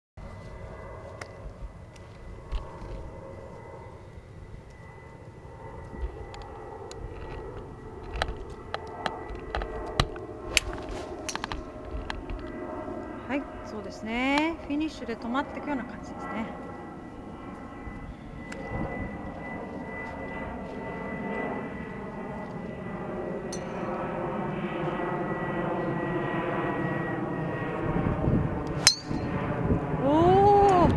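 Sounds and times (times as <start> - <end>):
steady background drone: 0.2 - 30.9
golf driver striking ball: 28.8 - 29.3.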